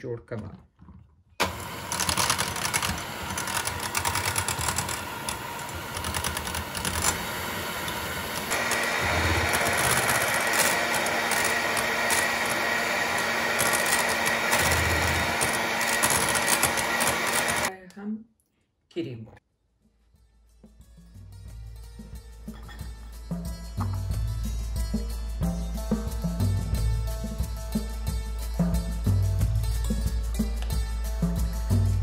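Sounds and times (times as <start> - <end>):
electric hand mixer whipping cream: 1.4 - 17.7
high steady whine: 1.4 - 17.7.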